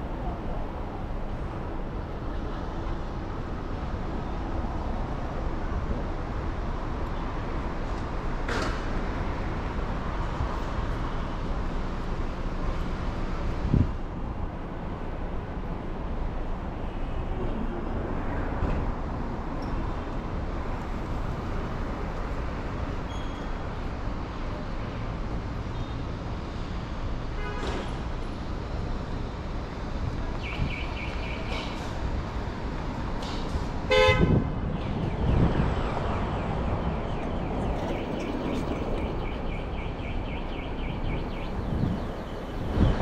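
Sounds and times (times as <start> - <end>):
street traffic noise: 0.0 - 43.0
vehicle horn honking: 33.9 - 34.4.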